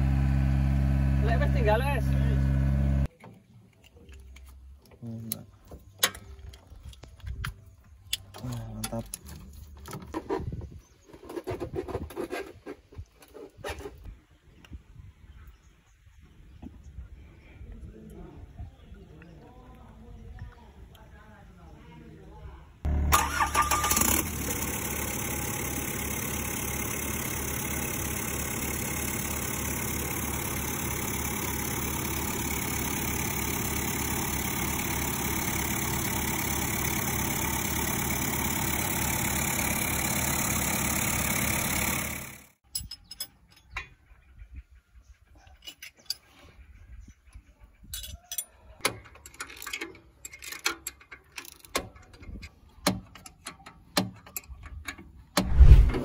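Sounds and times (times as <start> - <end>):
diesel engine idling: 0.0 - 3.1, 22.9 - 42.6
wrenches clicking on metal: 47.9 - 55.2.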